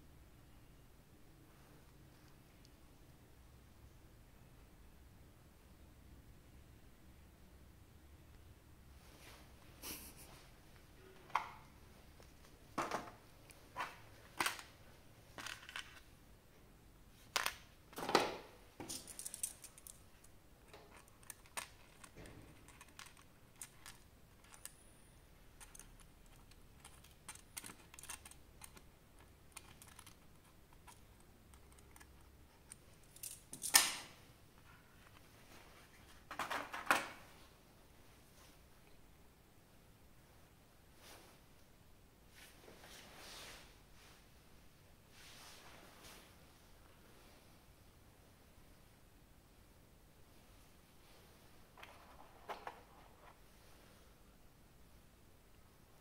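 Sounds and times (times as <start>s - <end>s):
plastic pieces clicking and tapping: 18.8s - 24.8s, 25.6s - 34.0s.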